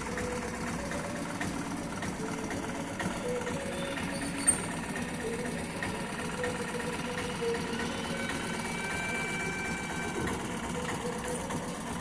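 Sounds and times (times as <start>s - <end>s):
mechanical hum: 0.0s - 12.0s.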